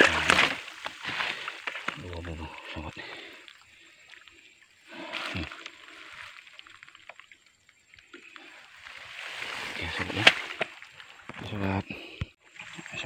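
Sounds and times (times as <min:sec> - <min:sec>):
water sloshing: 0:00.0 - 0:13.0.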